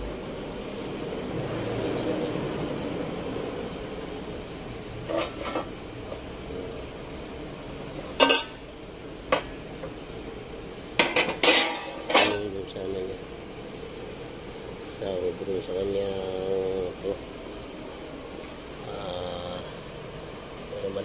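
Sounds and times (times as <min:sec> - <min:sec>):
metal tools clanking: 0:08.1 - 0:08.6, 0:11.0 - 0:12.5.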